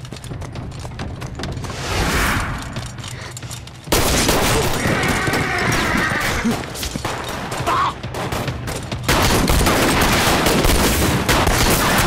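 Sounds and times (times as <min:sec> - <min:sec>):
heavy gunfire: 0:07.0 - 0:12.0.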